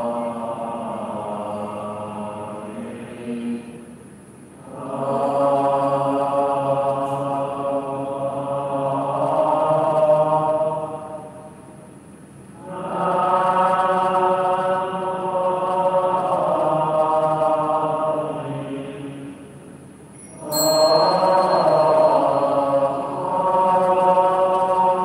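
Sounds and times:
devotional chanting: 0.0s - 25.0s
sharp strike with high ring: 20.5s - 22.7s.

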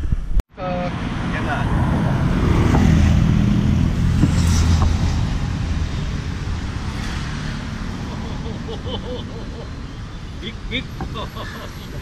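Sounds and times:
vehicle engine hum: 0.6s - 12.0s.

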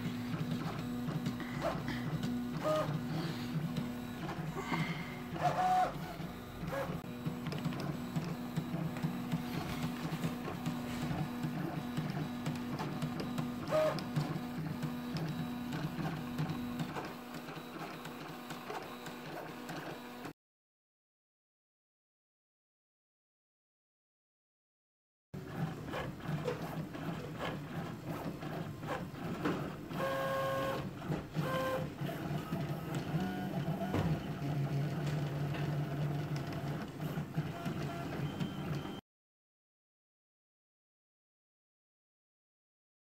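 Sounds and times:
short high-pitched printer tones: 0.0s - 20.3s, 29.9s - 34.7s, 37.2s - 39.0s.

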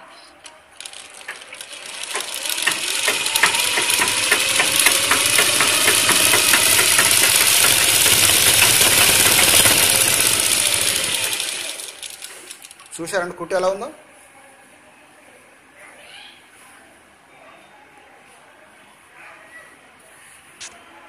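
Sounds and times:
sewing machine stitching: 0.8s - 13.0s.

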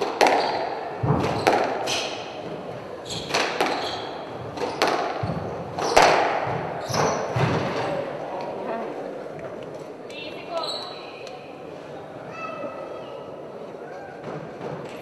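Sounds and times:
squash ball cracking off rackets: 0.0s - 8.0s
shoes squeaking on wooden floor: 0.2s - 7.8s, 10.5s - 11.2s.

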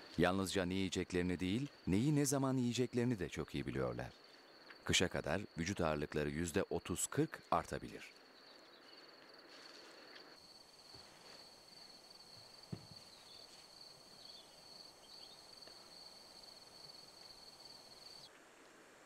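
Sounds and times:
soft thump: 12.7s - 13.0s.

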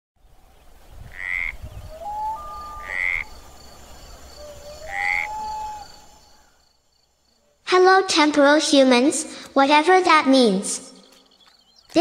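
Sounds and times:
loud croaking animal calls: 1.1s - 6.7s
faint high chirping: 1.6s - 7.6s.

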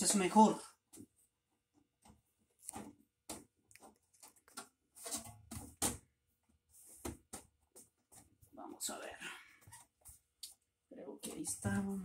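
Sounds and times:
sheet metal duct clicks and scrapes: 3.8s - 6.0s.

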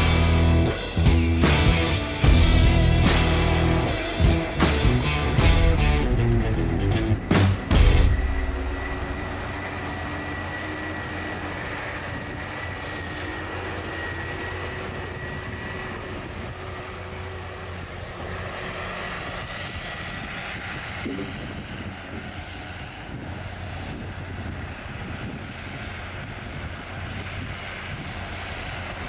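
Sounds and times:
thin high whine: 0.0s - 20.1s
diesel engines running: 0.0s - 29.0s.

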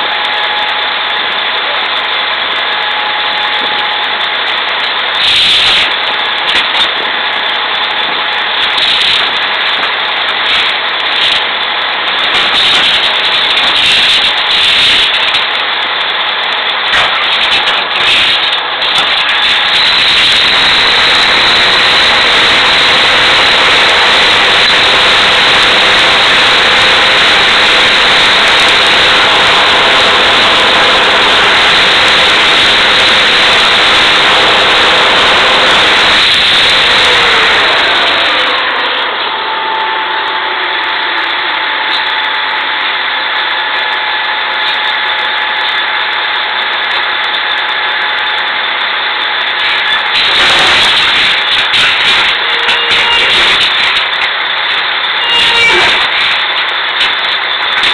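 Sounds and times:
drilling rig machinery running: 0.0s - 57.9s
machine winding down: 18.1s - 57.9s.

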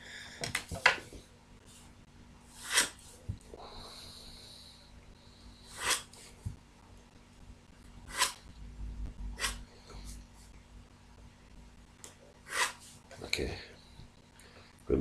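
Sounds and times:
pencil scratching on paper: 2.6s - 3.2s, 5.6s - 6.3s, 8.1s - 8.4s, 12.5s - 13.0s.

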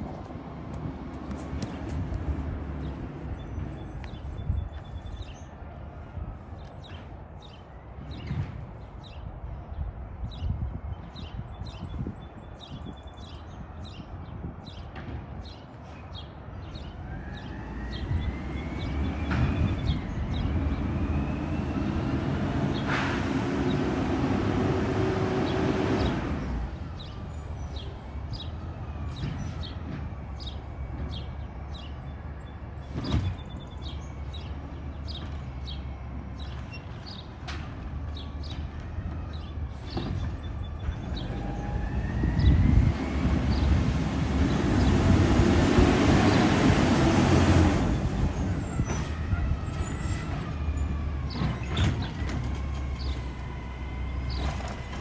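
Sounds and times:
garbage truck diesel engine whine: 17.0s - 32.4s, 34.0s - 55.0s.

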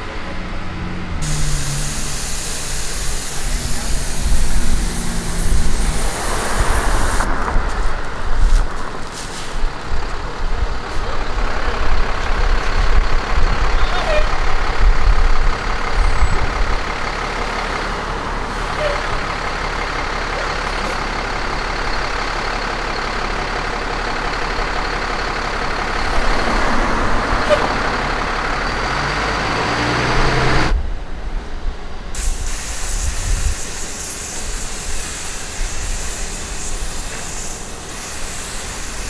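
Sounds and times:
hissy street background: 0.0s - 14.9s, 31.0s - 39.0s
large vehicle engine running: 0.0s - 39.0s
road traffic: 0.0s - 39.0s.

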